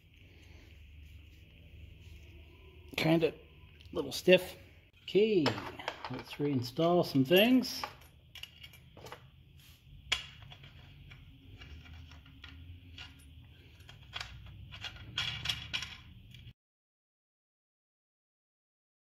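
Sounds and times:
faint low hum: 0.0s - 7.2s
small metal parts clinking: 7.2s - 9.3s, 10.1s - 16.5s.

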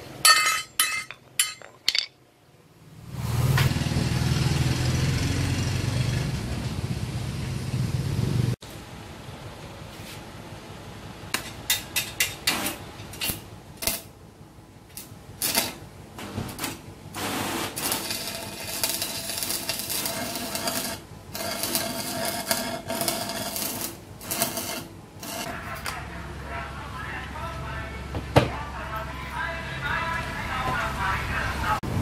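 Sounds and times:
arc welding crackle and hiss: 11.3s - 14.2s, 14.8s - 26.0s.

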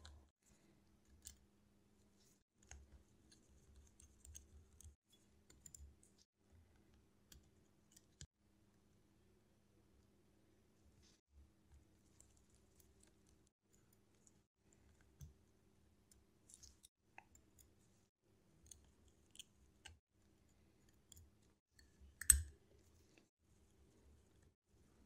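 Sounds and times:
small tool clicks and taps: 21.1s - 22.5s.

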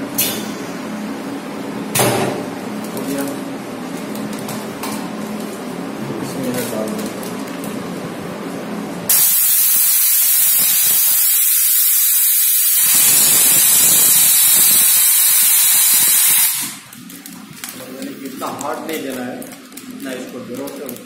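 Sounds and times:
compressed air hissing: 9.1s - 16.9s.

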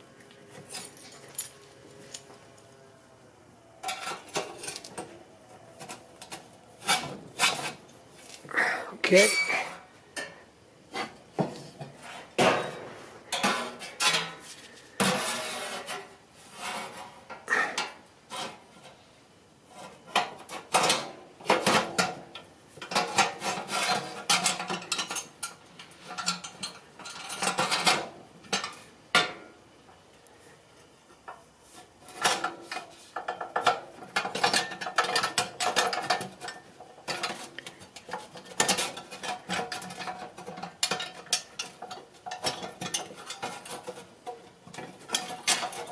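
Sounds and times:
sheet metal pipe parts rattling: 22.8s - 28.8s, 32.1s - 45.9s.

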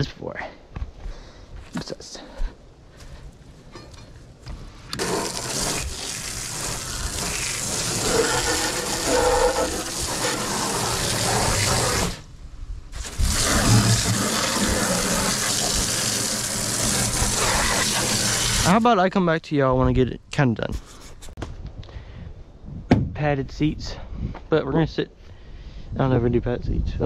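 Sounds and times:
water gushing from a hose: 4.9s - 12.2s, 13.0s - 18.9s.

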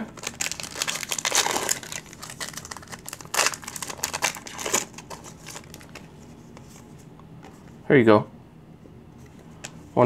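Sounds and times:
foil wrapper crinkling and tearing: 0.2s - 6.1s.

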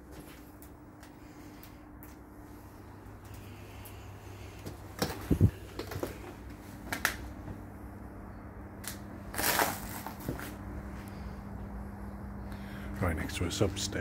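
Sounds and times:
faint electrical hum: 0.0s - 14.0s
footsteps crunching on dry leaves: 9.3s - 10.6s.

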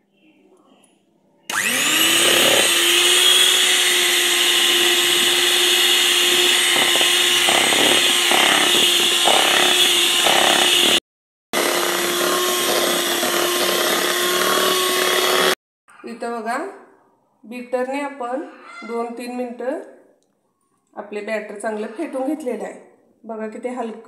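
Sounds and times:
electric hand mixer whirring: 1.5s - 11.0s, 11.6s - 15.6s.

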